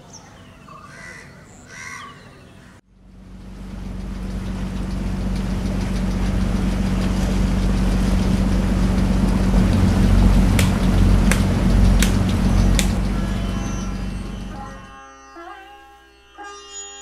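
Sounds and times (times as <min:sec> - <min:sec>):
boat engine running: 0:02.9 - 0:14.9
sharp clicks: 0:09.3 - 0:13.2.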